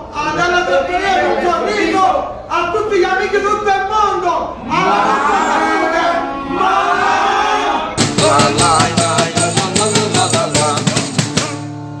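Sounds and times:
person singing: 0:08.0 - 0:11.7
music with steady drum beat: 0:08.0 - 0:12.0.

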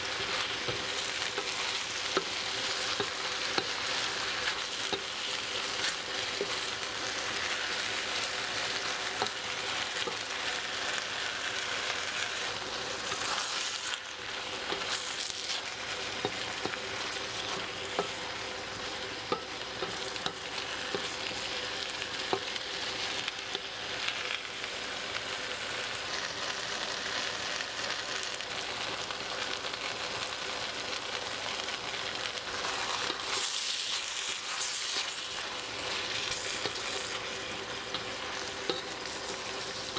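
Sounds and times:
spatula scraping a pan: 0:00.0 - 0:23.7, 0:32.5 - 0:39.9
food sizzling in a wok: 0:00.0 - 0:39.9.

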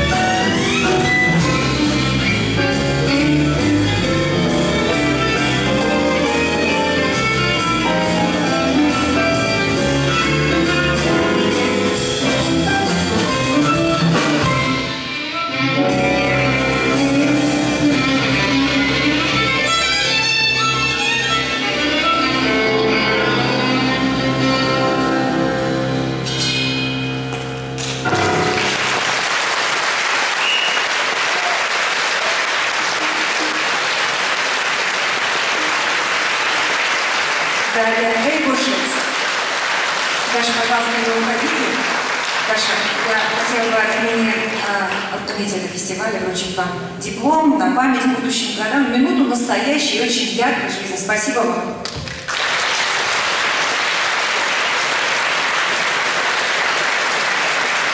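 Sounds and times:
audience applause: 0:28.0 - 0:45.2, 0:51.9 - 0:57.9.

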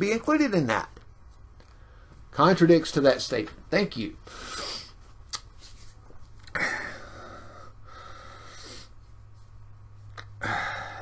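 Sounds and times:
low steady hum: 0:00.0 - 0:11.0
man breathing: 0:01.6 - 0:02.3, 0:04.2 - 0:05.0, 0:06.4 - 0:09.5, 0:10.1 - 0:11.0.

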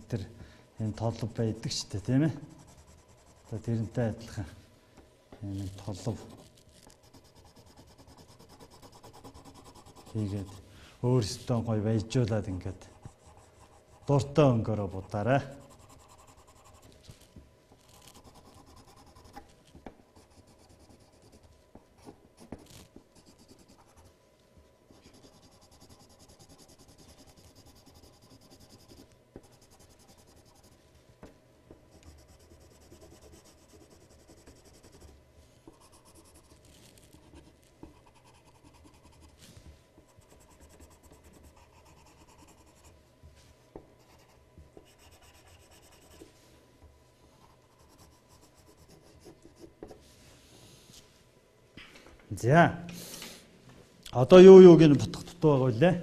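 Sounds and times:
pencil scratching on paper: 0:02.5 - 0:03.9, 0:05.6 - 0:10.6, 0:12.8 - 0:17.2, 0:17.8 - 0:19.6, 0:20.2 - 0:24.1, 0:24.9 - 0:30.8, 0:31.9 - 0:42.9, 0:44.0 - 0:46.3, 0:47.4 - 0:50.0.

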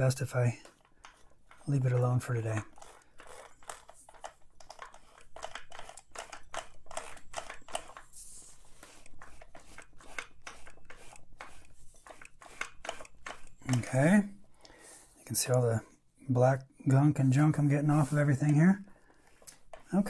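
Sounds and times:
cloth rag rubbing metal: 0:07.8 - 0:14.3, 0:17.3 - 0:18.8.

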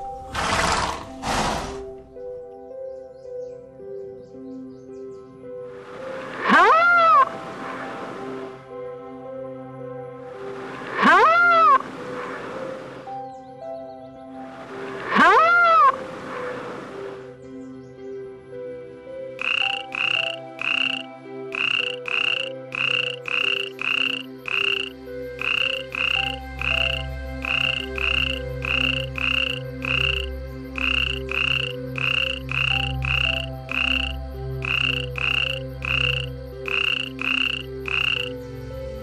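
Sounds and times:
frog croaking: 0:06.0 - 0:07.4, 0:10.8 - 0:12.0, 0:14.7 - 0:16.2, 0:19.4 - 0:39.0.

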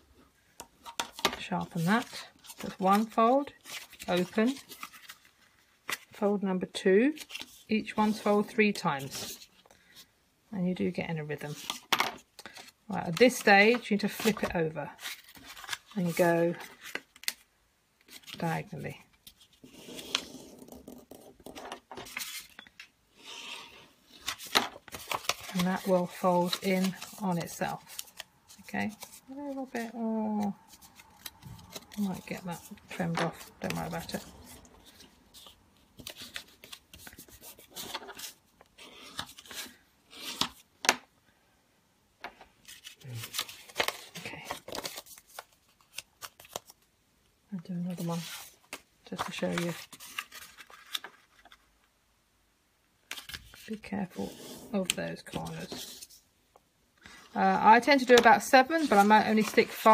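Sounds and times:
paper rustling and crackling: 0:00.8 - 0:06.2, 0:11.4 - 0:17.4, 0:18.0 - 0:22.6, 0:24.1 - 0:40.6, 0:42.6 - 0:46.8, 0:47.9 - 0:51.7, 0:57.0 - 0:59.9.

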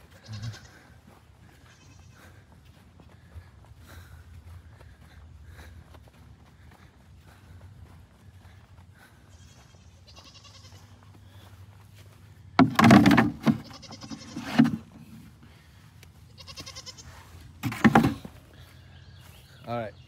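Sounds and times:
goats bleating: 0:00.0 - 0:02.4, 0:09.2 - 0:11.4, 0:13.3 - 0:15.0, 0:16.2 - 0:17.4.

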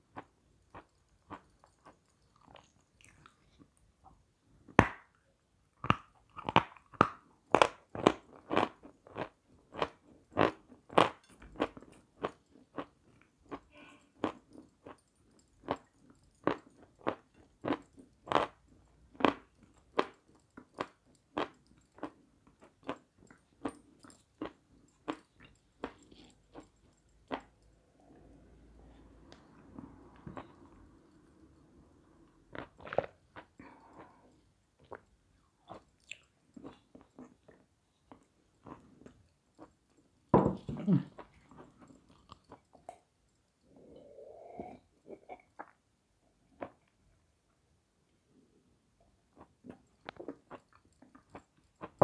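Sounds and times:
chewing and crunching: 0:00.1 - 0:03.8, 0:05.8 - 0:27.8, 0:32.5 - 0:40.2, 0:40.8 - 0:43.8, 0:49.3 - 0:52.0.

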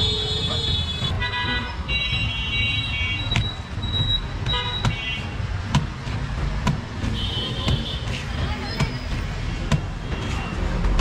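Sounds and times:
vehicle horns honking: 0:00.0 - 0:03.5, 0:04.1 - 0:05.4, 0:07.1 - 0:08.2
traffic rumble: 0:00.0 - 0:11.0.

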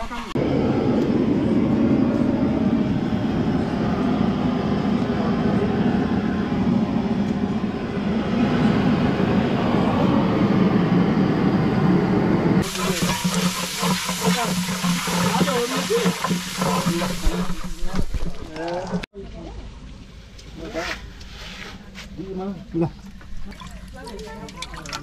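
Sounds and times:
low rumbling noise: 0:00.0 - 0:20.4
pot sizzling while stirred: 0:12.6 - 0:19.0.

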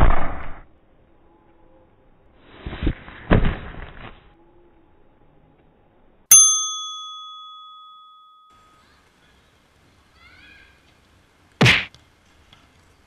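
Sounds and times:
bright bell ding: 0:06.3 - 0:08.8
dull thumps: 0:11.6 - 0:12.0.

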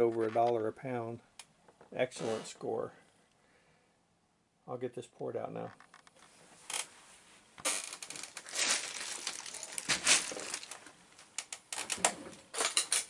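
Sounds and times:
toy bricks clattering in bag: 0:07.6 - 0:10.9
plastic bag crinkling: 0:07.6 - 0:13.0.

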